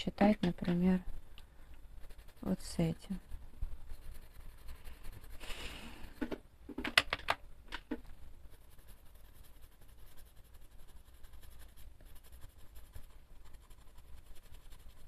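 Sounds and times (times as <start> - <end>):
pencil scratching on paper: 2.0 - 6.4, 8.4 - 15.0.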